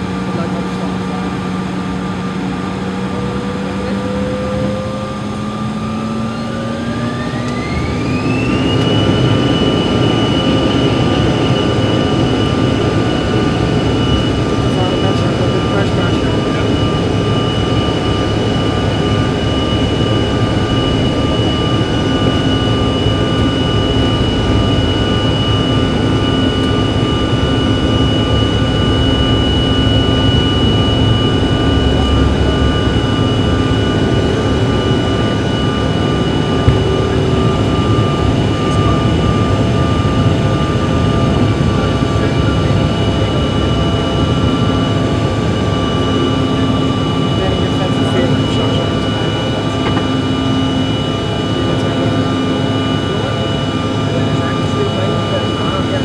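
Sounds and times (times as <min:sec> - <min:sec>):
jet engine rush with fan whine: 0:00.0 - 0:56.0.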